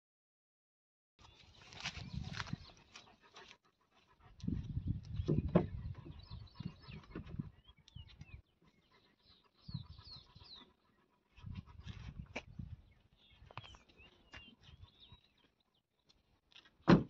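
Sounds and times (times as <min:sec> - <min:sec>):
birds chirping: 0:01.2 - 0:16.8.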